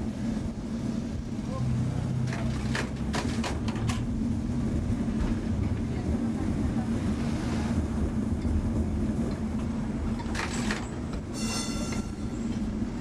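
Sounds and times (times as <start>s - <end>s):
tram motor hum: 0.0s - 13.0s
wheels rumbling on track: 0.0s - 13.0s
high-pitched squeal: 11.3s - 13.0s.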